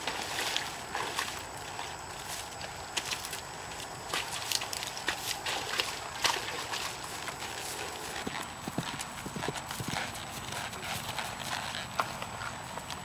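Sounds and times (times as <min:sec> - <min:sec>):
horse hoofbeats on dirt: 0:02.6 - 0:13.0.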